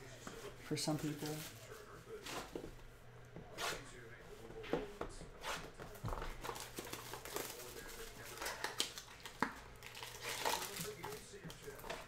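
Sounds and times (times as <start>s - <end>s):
plastic shrink wrap crinkling: 6.3s - 12.0s.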